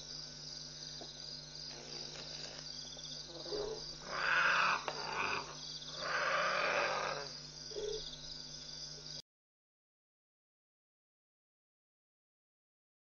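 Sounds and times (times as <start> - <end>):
night insects chirping: 0.0 - 9.2
harsh wild animal calls: 3.2 - 8.1.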